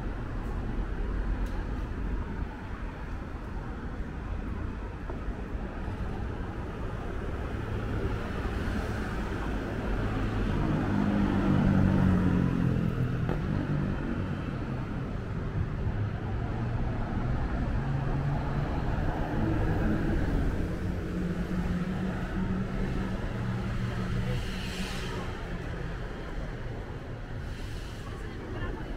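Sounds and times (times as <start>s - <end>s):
street noise: 0.0s - 28.9s.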